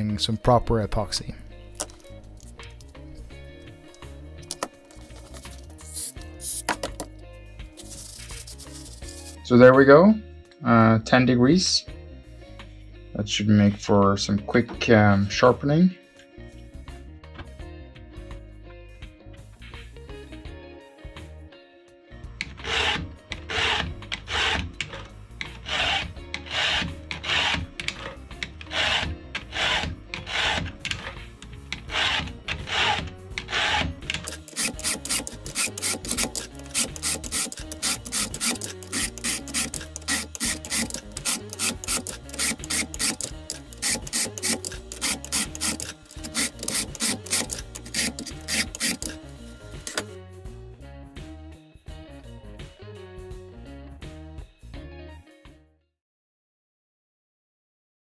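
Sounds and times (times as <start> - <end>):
files rasping on saw chain: 22.7 - 24.7, 25.5 - 27.7, 28.6 - 30.7, 31.8 - 49.2.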